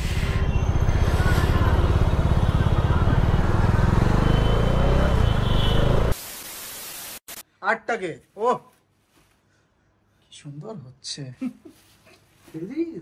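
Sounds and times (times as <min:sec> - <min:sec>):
motorcycle engine low pulsing: 0:00.0 - 0:05.3.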